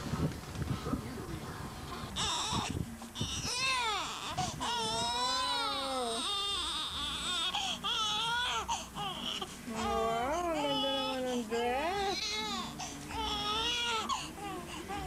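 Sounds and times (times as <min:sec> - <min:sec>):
newborn baby crying: 0:02.0 - 0:15.0.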